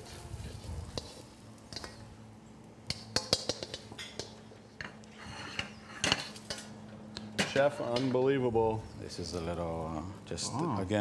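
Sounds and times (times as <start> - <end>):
tongs and wok clinking on plate: 2.9 - 6.7.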